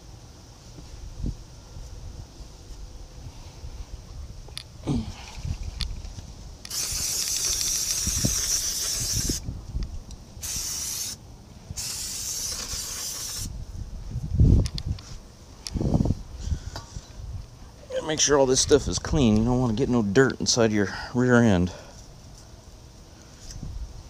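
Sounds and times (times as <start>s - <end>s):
hissing spray: 6.7s - 9.4s, 10.4s - 11.2s, 11.8s - 13.5s.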